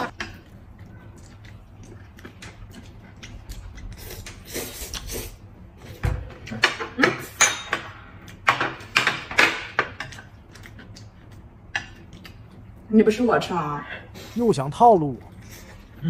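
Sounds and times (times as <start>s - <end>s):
chopsticks and plate clattering on glass: 6.5s - 10.3s.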